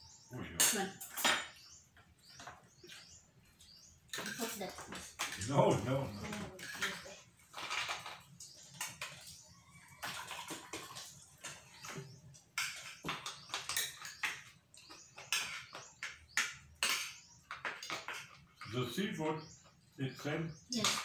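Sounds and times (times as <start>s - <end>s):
cutlery clinking on plates: 0.6s - 1.6s, 12.6s - 18.8s.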